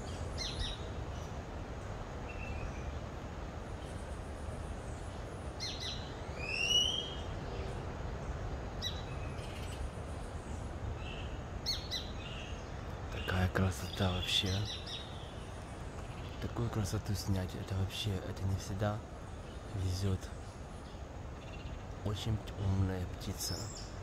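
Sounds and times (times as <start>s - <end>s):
birds chirping: 0.0s - 24.0s
rising whistled bird call: 5.6s - 7.3s.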